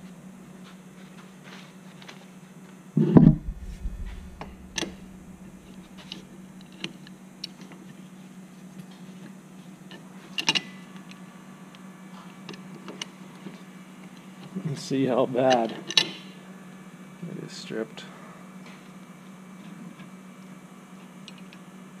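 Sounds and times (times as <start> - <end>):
thump: 3.2 - 6.0
steady low hum: 3.2 - 6.8.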